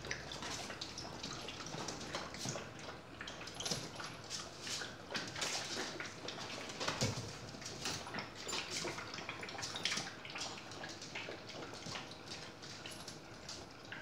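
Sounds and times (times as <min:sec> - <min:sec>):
puppies slurping from metal bowl: 0:00.0 - 0:14.0.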